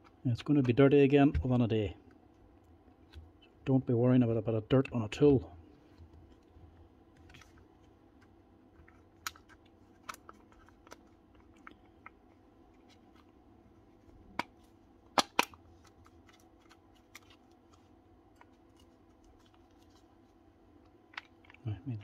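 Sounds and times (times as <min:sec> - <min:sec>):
plastic parts clicking and knocking: 0:14.3 - 0:17.4.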